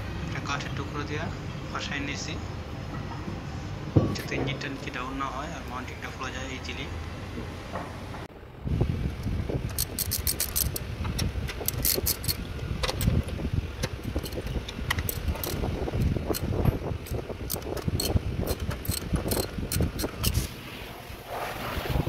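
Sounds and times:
ratchet wrench clicking: 9.7s - 20.5s.

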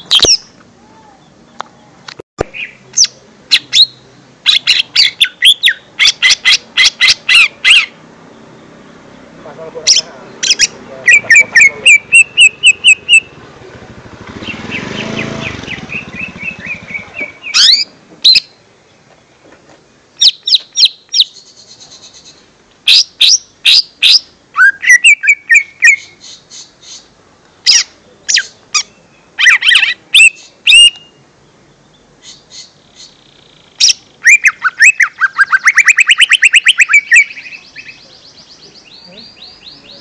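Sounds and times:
bird chirps and whistles: 2.4s - 7.9s, 10.4s - 13.4s, 20.2s - 27.0s, 27.7s - 31.2s, 33.8s - 38.1s.

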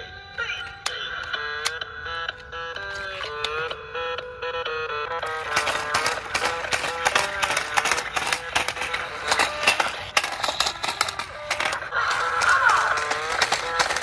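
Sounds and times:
tinny electronic toy tune: 0.0s - 14.0s
sharp clicks of dancing toy: 0.3s - 1.9s, 5.2s - 14.0s.

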